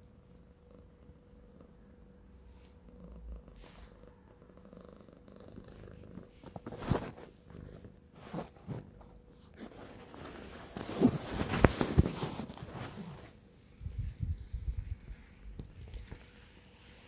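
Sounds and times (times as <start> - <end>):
cat purring: 0.1 - 13.4.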